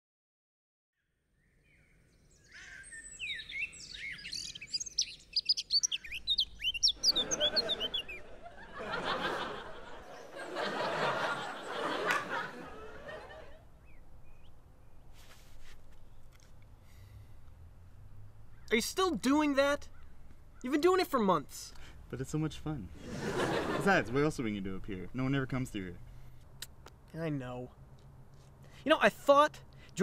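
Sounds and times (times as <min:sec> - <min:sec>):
songbirds chirping: 0:01.0 - 0:30.0
audience laughter: 0:07.0 - 0:13.6, 0:23.0 - 0:24.2.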